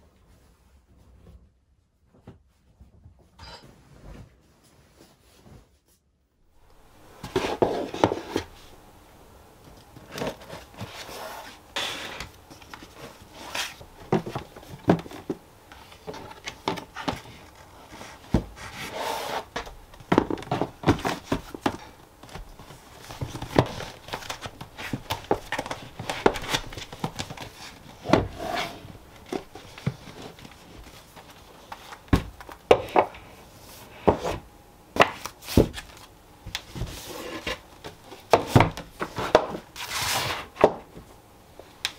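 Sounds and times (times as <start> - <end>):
notebook set on shelf: 6.6 - 41.0
paper and card rustling: 6.7 - 8.8, 9.6 - 34.4
board sliding into storage box: 28.0 - 29.0.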